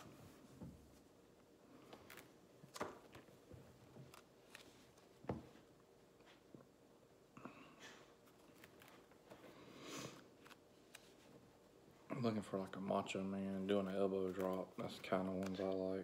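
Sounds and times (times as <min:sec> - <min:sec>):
plastic pages rustling: 0:08.2 - 0:09.4, 0:13.7 - 0:16.0.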